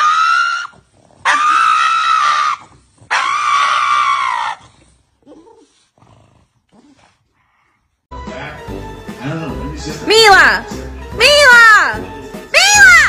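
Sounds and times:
dog howling: 0.0 - 4.8.

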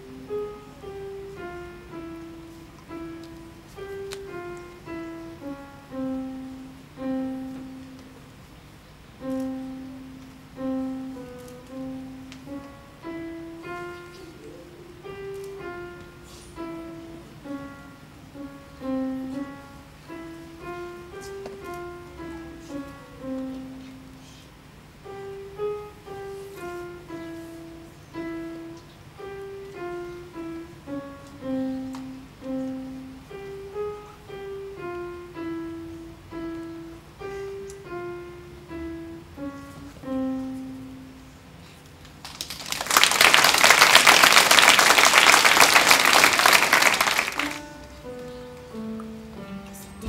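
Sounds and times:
slow piano melody: 0.0 - 50.0
audience applause: 42.2 - 47.7.

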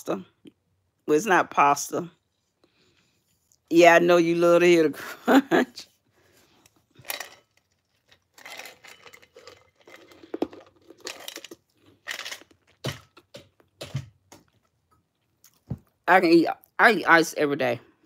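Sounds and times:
person crunching ice cubes: 7.9 - 14.6.

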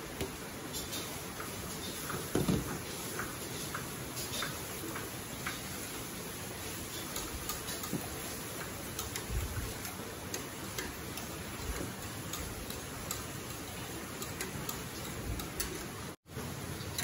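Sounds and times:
whisk clicking against pot: 6.7 - 16.1.

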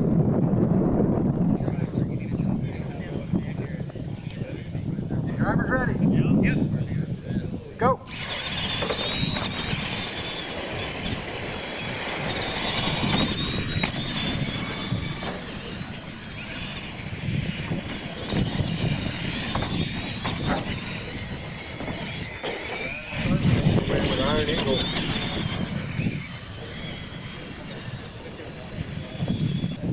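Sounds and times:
outdoor rumble: 0.0 - 29.9
toy truck motor whining: 8.0 - 29.9.

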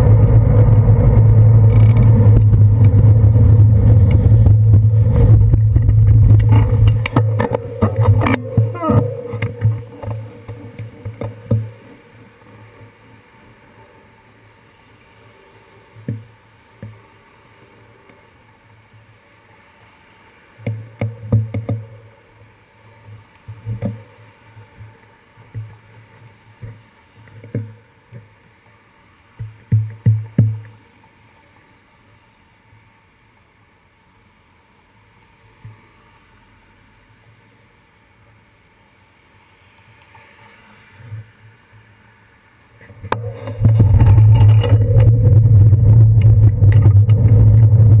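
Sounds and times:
cars passing: 0.0 - 10.4
road vibration rumble and rattle: 0.0 - 11.5, 43.1 - 48.0
wind on camera: 0.0 - 12.8, 42.8 - 48.0.

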